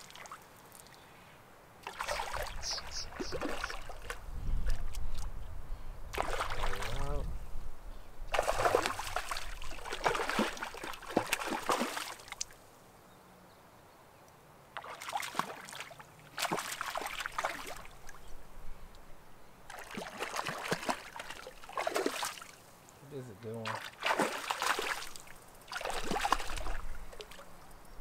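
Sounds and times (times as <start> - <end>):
fish thrashing and splashing: 1.8 - 4.2, 6.2 - 6.9, 8.3 - 12.4, 19.7 - 22.5, 23.6 - 27.4.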